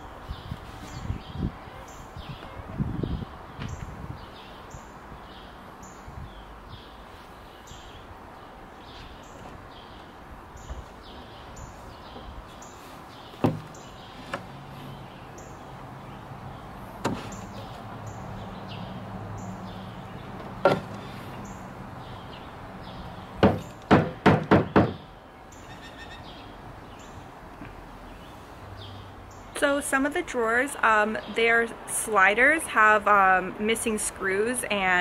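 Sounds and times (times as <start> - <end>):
hammer tapping wood: 23.4 - 25.0.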